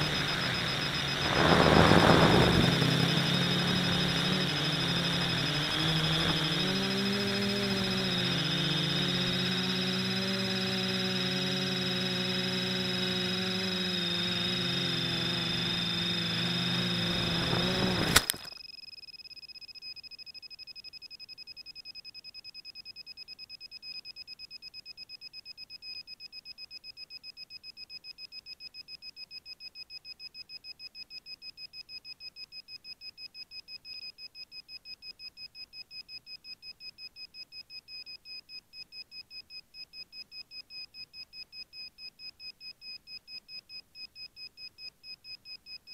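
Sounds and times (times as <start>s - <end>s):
drone crashing into grass: 0.0s - 6.8s, 17.0s - 18.5s
drone propellers whining: 0.0s - 18.5s
rapid high beeps: 0.0s - 45.9s.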